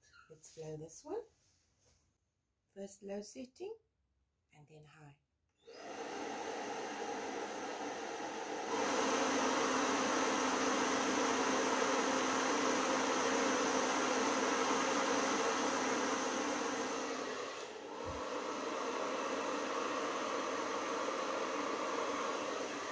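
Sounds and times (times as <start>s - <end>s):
hair dryer blowing: 5.6s - 22.9s.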